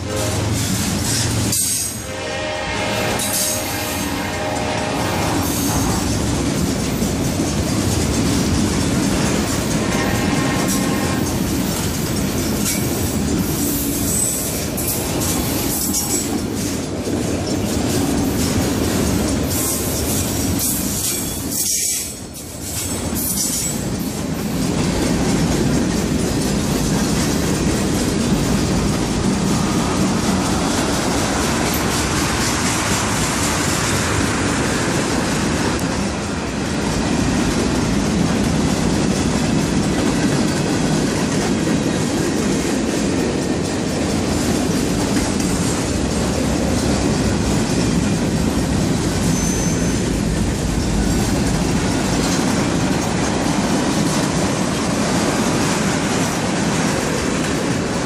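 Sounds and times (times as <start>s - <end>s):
freight train wheels rumbling and rattling: 0.0s - 58.0s
train wheel squeal: 0.3s - 2.1s, 3.1s - 3.8s, 5.2s - 6.2s, 12.6s - 16.8s, 19.5s - 23.8s, 49.1s - 51.0s.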